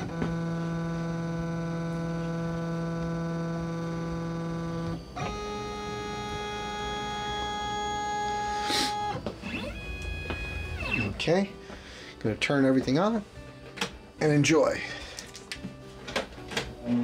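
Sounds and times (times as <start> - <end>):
held chord background music: 6.4 - 17.0.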